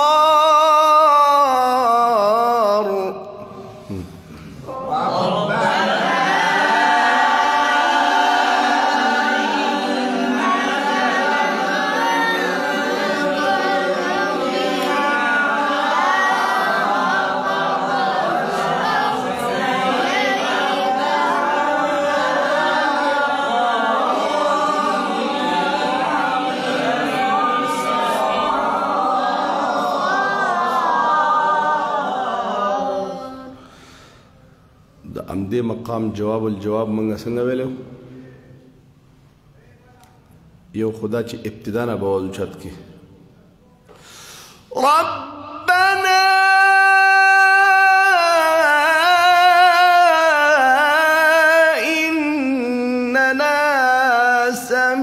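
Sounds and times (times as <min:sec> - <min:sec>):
man reciting melodically: 0:00.0 - 0:04.2, 0:35.0 - 0:38.6, 0:40.7 - 0:43.0, 0:44.6 - 0:55.0.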